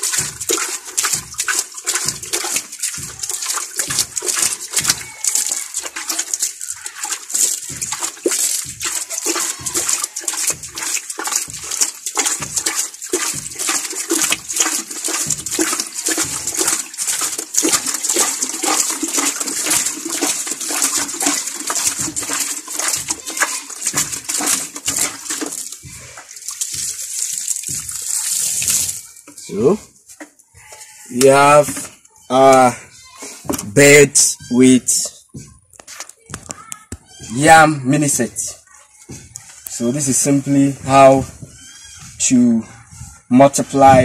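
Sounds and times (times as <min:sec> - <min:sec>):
water splashing onto damp sawdust: 0:00.0 - 0:29.9.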